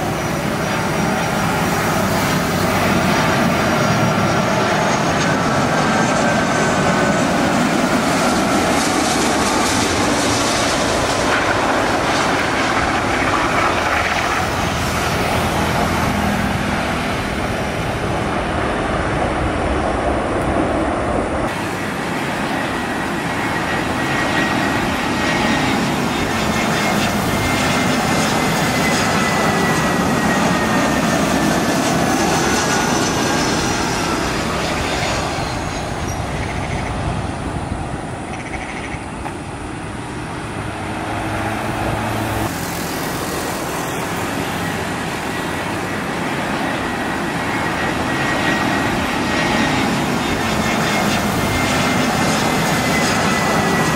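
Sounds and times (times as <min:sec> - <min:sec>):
jet engines rushing: 0:00.0 - 0:53.9.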